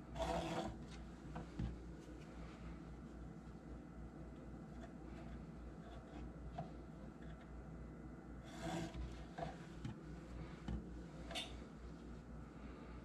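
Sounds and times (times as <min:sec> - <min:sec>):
rustling and rubbing of yarn: 0:00.0 - 0:04.0, 0:08.4 - 0:12.3
low steady hum: 0:00.0 - 0:13.0.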